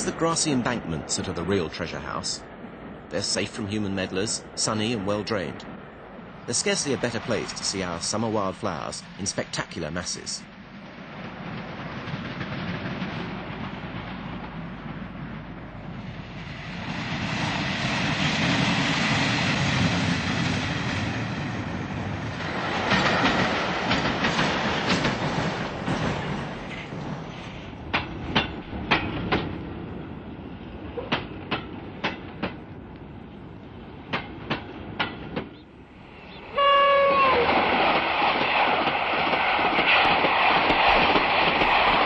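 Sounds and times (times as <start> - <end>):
train wheels rushing: 6.5 - 30.0, 34.0 - 42.0
wheels clacking over rail joints: 22.4 - 26.7, 27.8 - 29.7.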